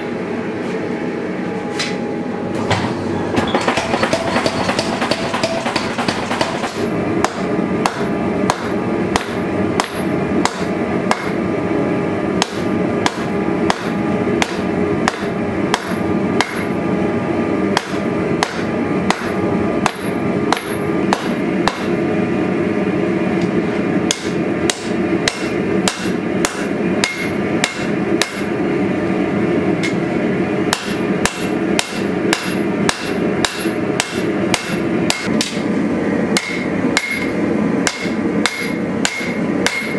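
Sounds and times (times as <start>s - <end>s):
workshop hum: 0.0s - 39.9s
hammer striking metal on anvil: 3.5s - 11.4s, 12.4s - 16.8s, 17.7s - 22.0s, 24.1s - 28.5s, 30.7s - 35.6s, 36.3s - 39.9s.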